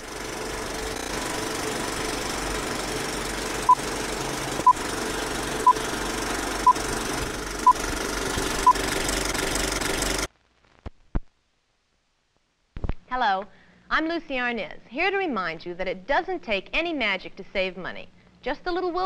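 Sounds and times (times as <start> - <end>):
film projector running: 0.0 - 10.3.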